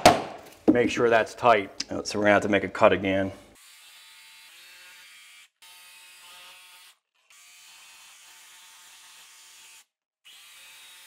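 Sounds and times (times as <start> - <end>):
jigsaw motor buzz: 3.6 - 11.0.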